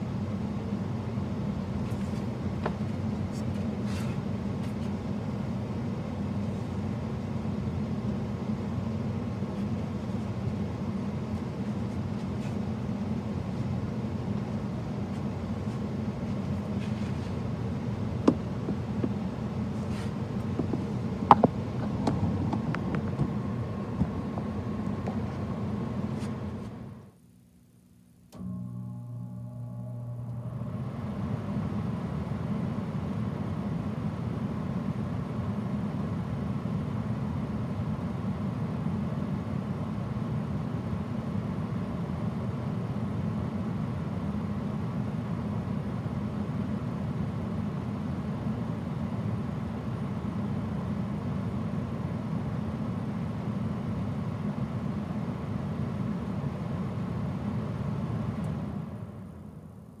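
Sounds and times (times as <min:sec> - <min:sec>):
gas furnace rumbling: 0:00.0 - 0:27.2.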